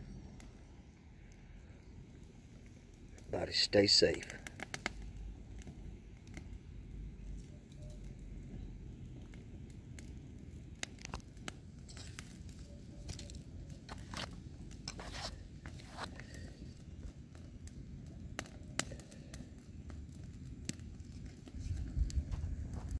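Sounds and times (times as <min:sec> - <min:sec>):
brush pile crackling and popping: 0:02.9 - 0:06.6, 0:10.0 - 0:22.9.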